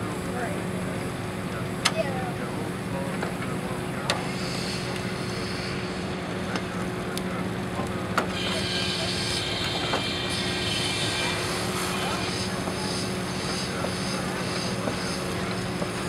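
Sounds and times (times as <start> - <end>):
steam engine humming: 0.0 - 16.0
steam hiss: 4.2 - 5.9, 8.3 - 16.0.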